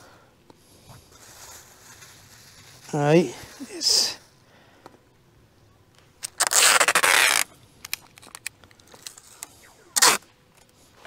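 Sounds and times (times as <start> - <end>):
faint crackles: 0.4 - 5.1
packing tape pulled off roll: 1.1 - 3.6, 6.2 - 10.2.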